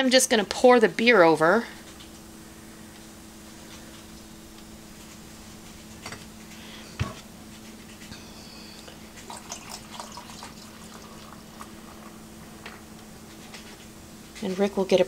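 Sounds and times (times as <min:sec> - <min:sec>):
steady low hum: 0:00.0 - 0:15.0
beer fizzing over ice: 0:09.2 - 0:12.2.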